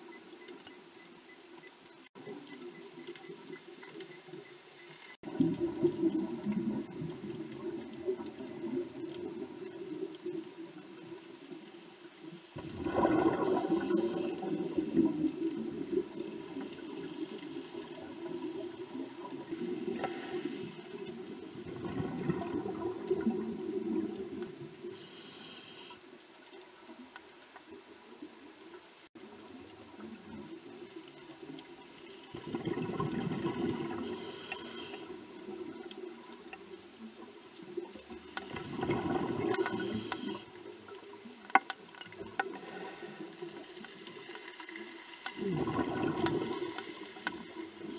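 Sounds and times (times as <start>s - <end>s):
exhaled bubbles gurgling underwater: 5.2s - 11.7s, 12.4s - 25.0s, 29.7s - 41.4s, 42.0s - 47.9s
regulator air hiss: 13.5s - 14.4s, 24.9s - 26.0s, 34.0s - 35.2s, 39.5s - 40.6s.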